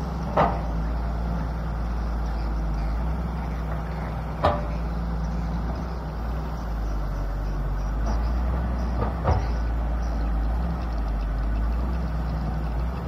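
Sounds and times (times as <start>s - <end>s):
diesel excavator engine running: 0.0s - 13.0s.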